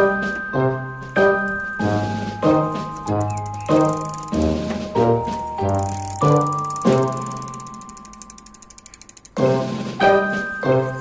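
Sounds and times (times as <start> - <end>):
bicycle freewheel ratcheting: 2.8 - 9.9.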